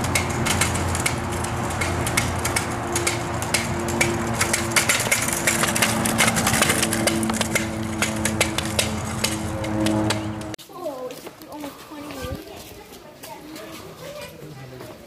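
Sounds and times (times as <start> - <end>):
motor-like hum: 0.0 - 10.6
scooter wheels clattering on concrete: 0.0 - 14.3.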